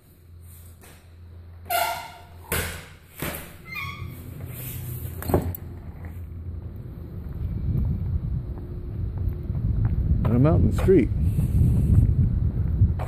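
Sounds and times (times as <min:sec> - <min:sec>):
low machine hum: 0:00.0 - 0:13.0
door squeaking: 0:01.6 - 0:04.5.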